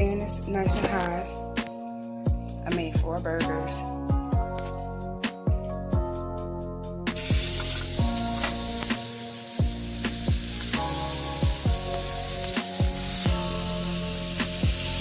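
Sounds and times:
music with deep bass beat: 0.0 - 15.0
meat patty sizzling in a frying pan: 7.2 - 15.0.

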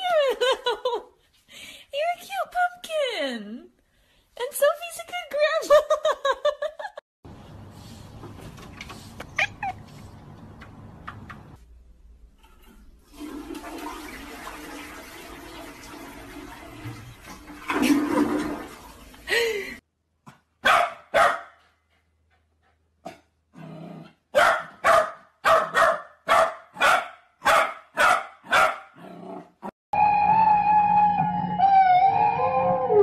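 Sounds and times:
toilet flushing: 12.4 - 19.8
dog barks: 20.3 - 21.6, 24.3 - 29.0.

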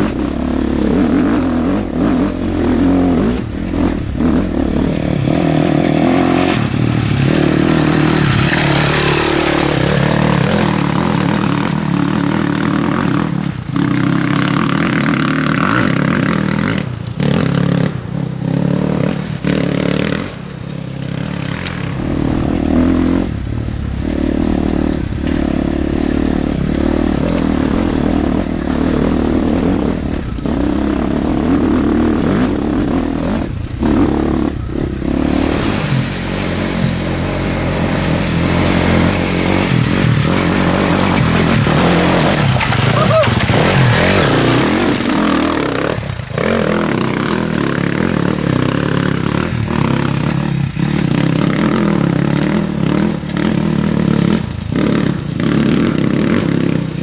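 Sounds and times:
motorcycle engine revving: 0.0 - 57.0
clattering and scraping: 4.7 - 17.2, 37.8 - 48.1.

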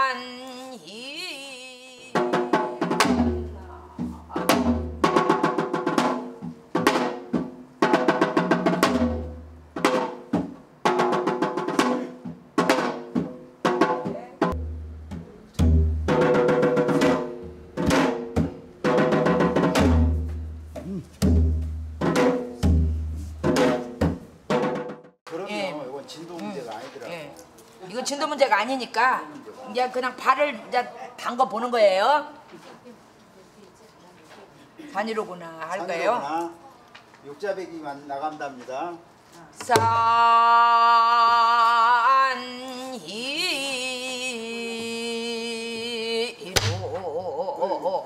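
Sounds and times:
rhythmic drumming: 2.1 - 25.1, 46.5 - 47.2
deep drum booms: 14.4 - 24.9.

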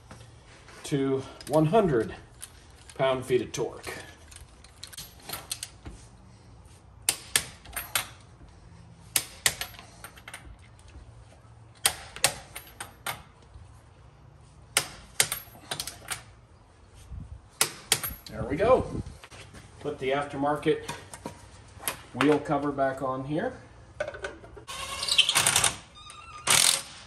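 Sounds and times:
wrench ratcheting: 26.4 - 27.0.

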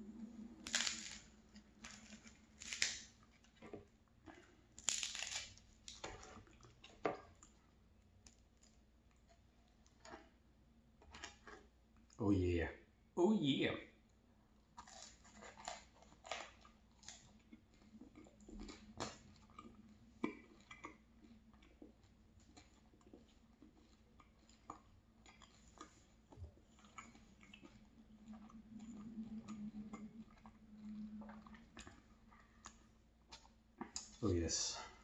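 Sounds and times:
wet chewing mouth clicks: 17.2 - 34.2.

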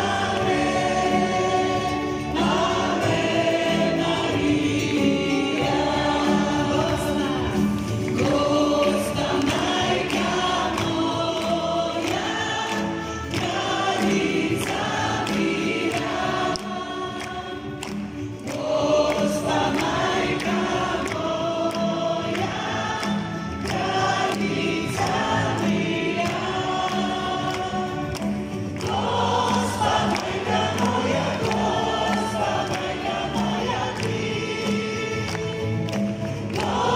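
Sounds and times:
accompanying music: 0.0 - 36.9
congregation singing: 0.0 - 36.9
hands clapping: 0.0 - 36.9.

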